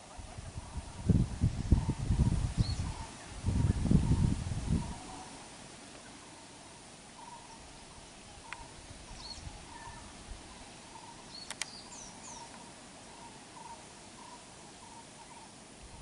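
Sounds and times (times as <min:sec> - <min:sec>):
bird chirps: 0:06.0 - 0:07.6, 0:08.4 - 0:15.6
sharp clicks: 0:11.4 - 0:11.8.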